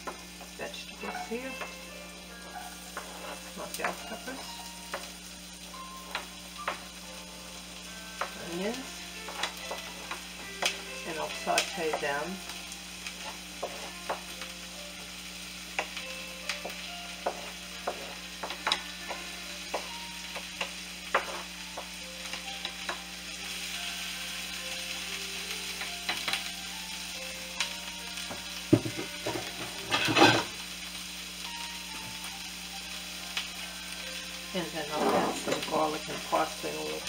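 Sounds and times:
vegetables sizzling in butter: 0:00.0 - 0:37.0
wooden spatula scraping a pan: 0:02.8 - 0:04.4, 0:13.2 - 0:14.2, 0:17.2 - 0:18.8, 0:21.1 - 0:21.5, 0:34.6 - 0:36.5.

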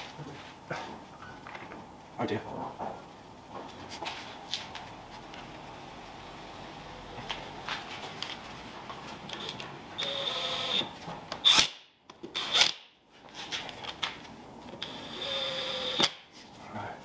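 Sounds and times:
impact wrench motor whine: 0:10.0 - 0:11.7, 0:14.8 - 0:16.2.

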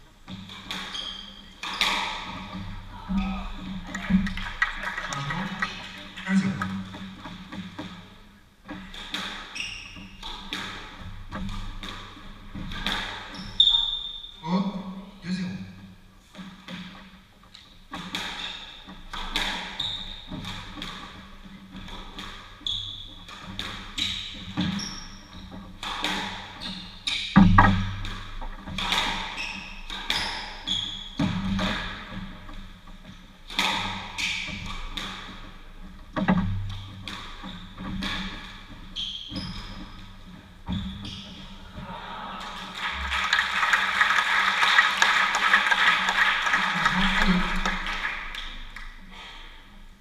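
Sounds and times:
shoes squeaking on wooden floor: 0:00.2 - 0:03.7, 0:08.7 - 0:11.7, 0:12.6 - 0:14.4, 0:18.3 - 0:27.4, 0:29.0 - 0:33.2, 0:36.8 - 0:41.7
squash ball hits: 0:18.0 - 0:19.8, 0:25.8 - 0:26.5, 0:27.4 - 0:30.6, 0:33.5 - 0:35.4.

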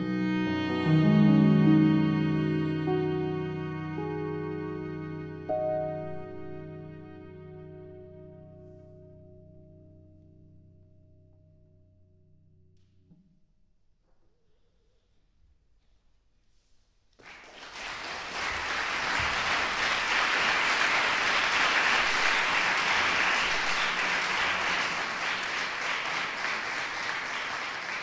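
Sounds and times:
audience applause: 0:17.2 - 0:28.0.

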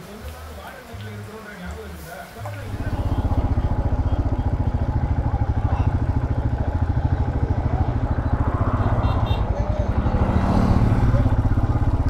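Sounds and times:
motorcycle engine running: 0:02.7 - 0:12.0.

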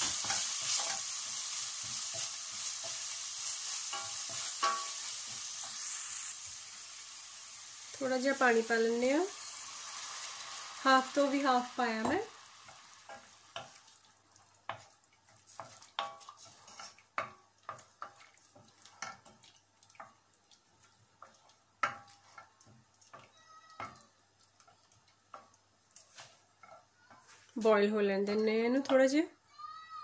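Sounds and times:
faint sizzle of cooking sauce: 0:00.0 - 0:30.0
wooden spoon scraping a steel pan: 0:14.7 - 0:19.4, 0:25.4 - 0:27.7.

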